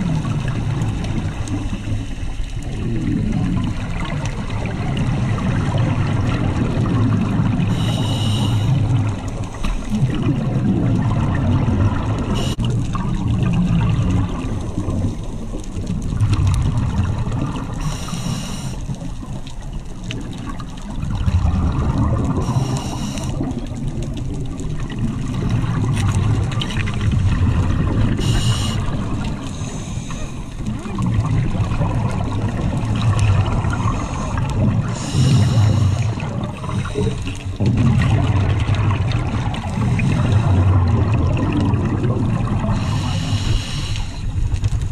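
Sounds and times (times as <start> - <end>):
bubbling exhales: 0.0 - 44.9
regulator hiss on inhale: 7.7 - 9.9, 12.4 - 12.7, 17.8 - 19.1, 22.4 - 23.5, 28.1 - 30.6, 33.7 - 37.6, 42.7 - 44.5.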